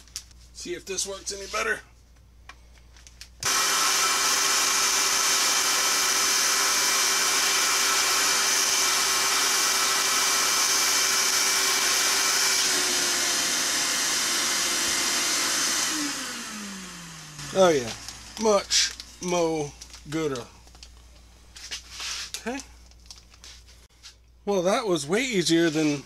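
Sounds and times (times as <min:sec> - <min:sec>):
vacuum cleaner humming: 0:03.4 - 0:19.6.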